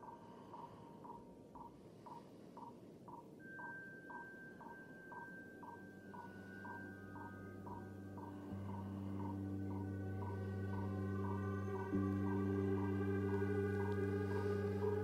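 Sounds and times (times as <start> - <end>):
soft pulsing beep: 0.0 - 15.0
steady high tone: 3.4 - 15.0
low drone: 5.6 - 15.0.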